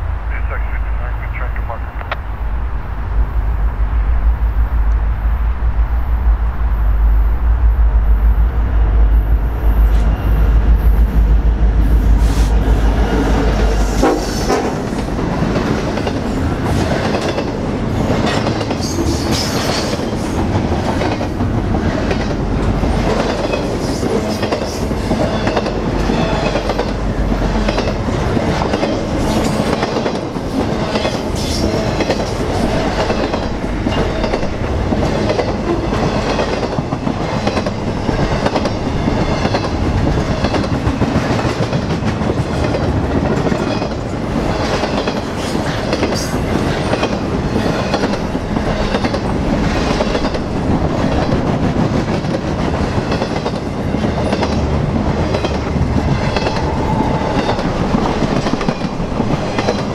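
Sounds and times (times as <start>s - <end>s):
train low rumble: 0.0s - 59.9s
train wheels clickety-clack: 12.2s - 59.9s.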